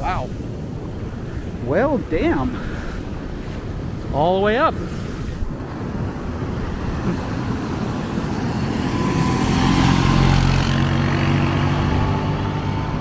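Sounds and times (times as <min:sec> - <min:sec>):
heavy surf: 0:00.0 - 0:13.0
atv engine driving past: 0:06.8 - 0:13.0.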